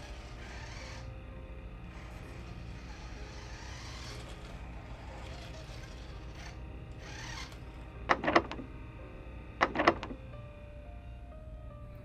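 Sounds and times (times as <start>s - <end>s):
low steady hum: 0.0s - 12.0s
locked door rattling: 8.1s - 8.7s, 9.6s - 10.2s.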